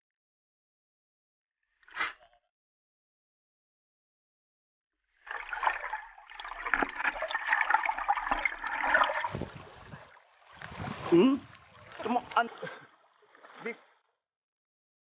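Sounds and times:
river water sloshing and splashing: 0:05.2 - 0:14.1.

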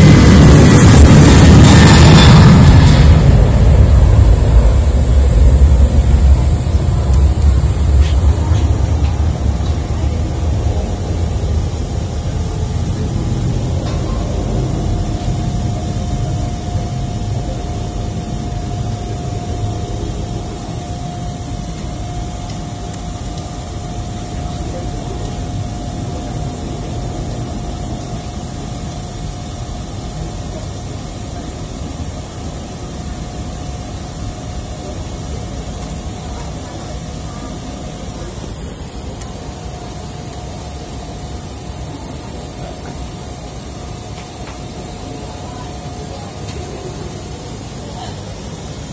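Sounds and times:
low rumble: 0:00.0 - 0:16.6
jet turbine whine: 0:00.0 - 0:48.9.

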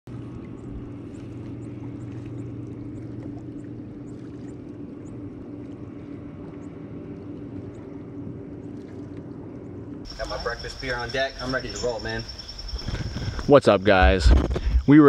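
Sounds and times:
water sloshing around hull: 0:00.1 - 0:10.8
steady low hum: 0:00.1 - 0:15.0.

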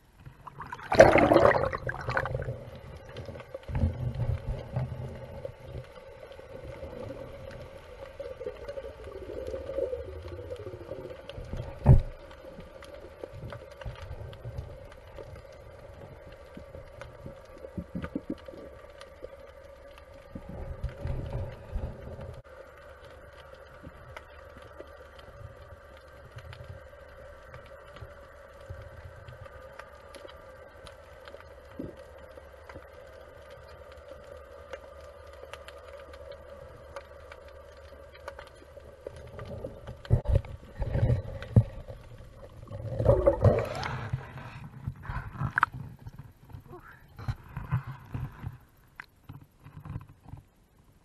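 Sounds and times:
muffled underwater water movement: 0:00.0 - 0:51.0
gurgling water rush: 0:00.4 - 0:06.0
small clicks: 0:02.8 - 0:44.0.

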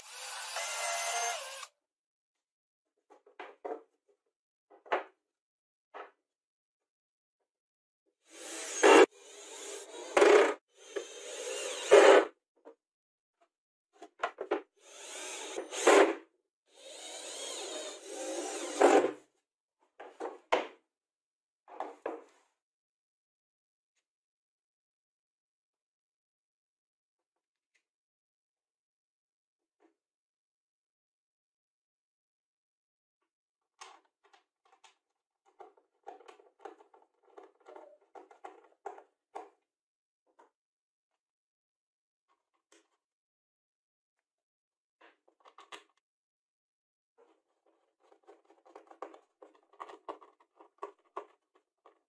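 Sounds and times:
drill driving screws: 0:00.0 - 0:01.7, 0:08.3 - 0:12.3, 0:14.8 - 0:19.1
screwdriver scraping screw: 0:00.0 - 0:01.7.

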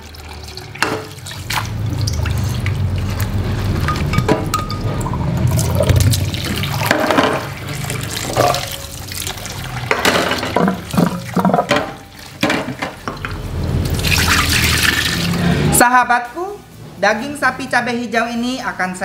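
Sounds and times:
tap water running and splashing: 0:00.0 - 0:04.6, 0:05.4 - 0:15.4.

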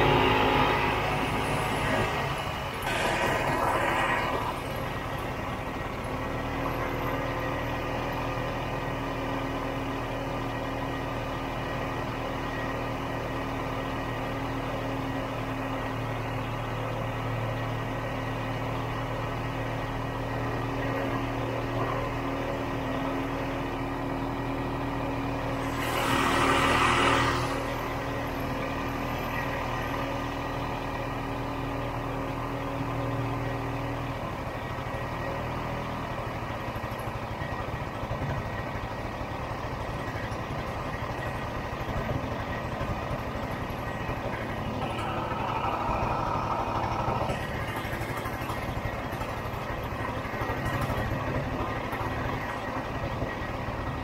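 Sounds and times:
loud rush of noise: 0:00.0 - 0:05.1, 0:25.6 - 0:28.0
snowmobile engine idling: 0:36.7 - 0:54.0.

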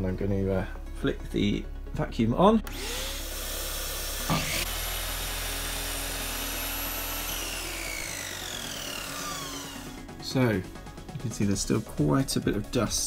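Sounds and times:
miter saw cutting wood: 0:02.7 - 0:10.1
saw motor winding down: 0:02.7 - 0:10.2
shop vacuum running: 0:02.7 - 0:10.2.

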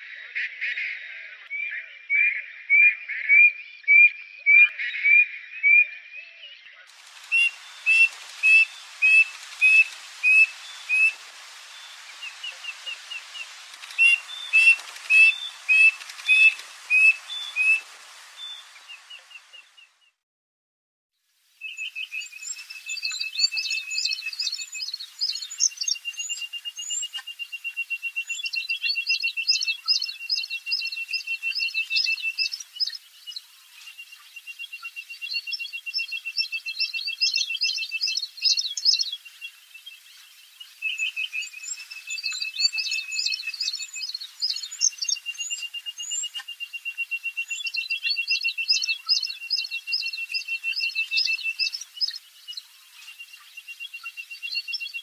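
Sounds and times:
quail trilling: 0:07.1 - 0:19.6
quail whistling calls: 0:07.2 - 0:19.6.

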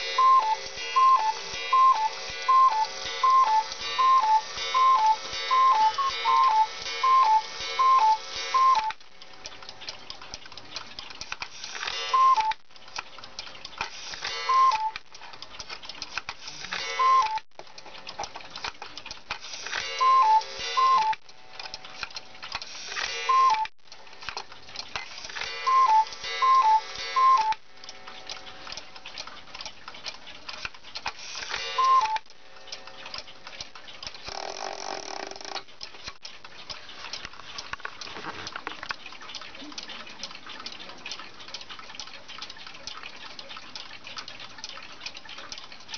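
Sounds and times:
cuckoo clock calling: 0:00.0 - 0:09.0, 0:11.9 - 0:12.6, 0:14.3 - 0:15.0, 0:16.6 - 0:17.4, 0:19.7 - 0:21.2, 0:23.0 - 0:23.7, 0:25.3 - 0:28.6, 0:31.6 - 0:33.4, 0:34.1 - 0:35.6
clock ticking: 0:00.0 - 0:45.9.

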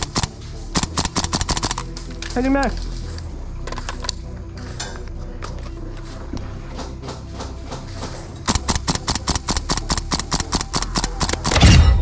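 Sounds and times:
airsoft rifle rapid fire: 0:00.0 - 0:01.8, 0:08.5 - 0:11.6.

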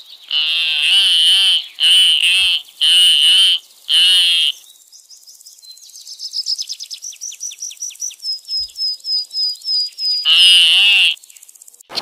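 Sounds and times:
eagle calling: 0:00.3 - 0:04.6, 0:10.2 - 0:11.2.

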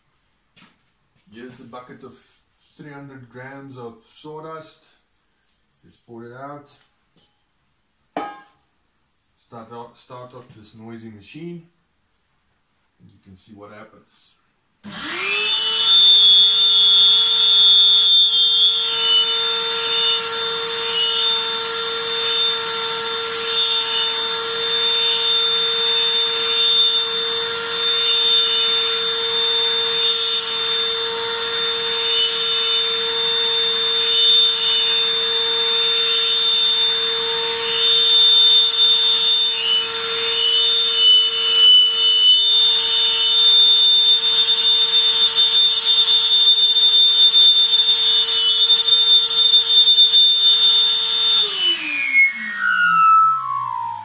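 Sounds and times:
vacuum cleaner running: 0:14.8 - 0:54.0
whistle from ribbed hose: 0:15.3 - 0:20.2, 0:23.3 - 0:27.1, 0:37.6 - 0:54.0.

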